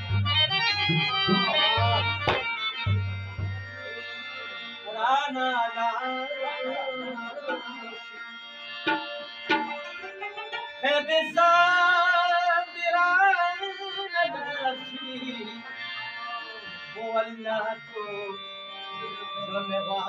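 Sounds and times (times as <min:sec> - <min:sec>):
harmonium chords: 0:00.0 - 0:20.0
man singing: 0:01.2 - 0:02.4, 0:04.8 - 0:08.2, 0:09.9 - 0:20.0
tabla strokes: 0:01.2 - 0:03.7, 0:08.9 - 0:10.8.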